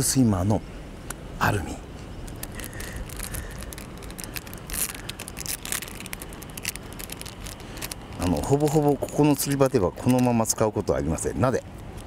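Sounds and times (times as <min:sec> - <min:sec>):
plastic blister pack crackling: 0:02.1 - 0:12.0.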